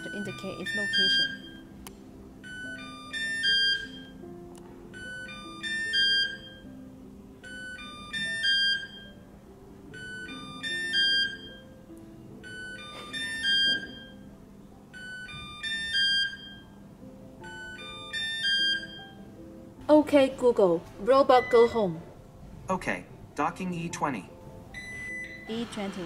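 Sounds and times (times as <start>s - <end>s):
electronic beep tune: 0.0s - 1.6s, 2.4s - 4.2s, 4.9s - 6.7s, 7.4s - 9.2s, 10.0s - 11.6s, 12.4s - 14.2s, 15.0s - 16.7s, 17.4s - 19.2s, 21.2s - 22.0s, 24.8s - 25.7s
soft background music: 0.0s - 26.0s.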